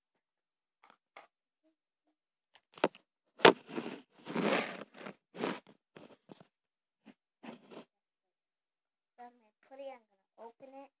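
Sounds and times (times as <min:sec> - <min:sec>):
rustling scrapes: 0:03.4 - 0:06.5, 0:07.1 - 0:07.9.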